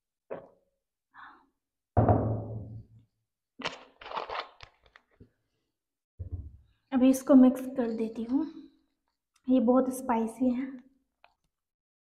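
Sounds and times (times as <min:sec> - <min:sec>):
plastic bottle crinkling: 0:03.6 - 0:05.3.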